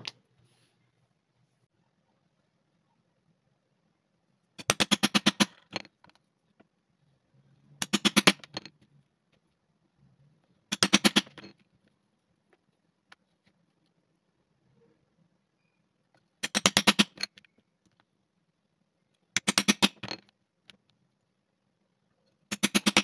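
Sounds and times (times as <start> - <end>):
hammer striking metal chisel: 10.7 - 11.5, 19.4 - 20.2, 22.5 - 23.0.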